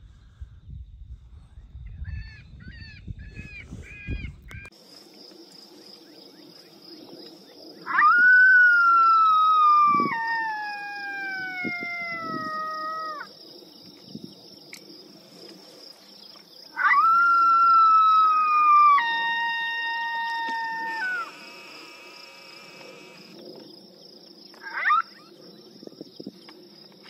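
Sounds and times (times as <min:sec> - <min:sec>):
coyote howls: 0:07.8 - 0:13.3, 0:16.7 - 0:23.3, 0:24.6 - 0:25.4.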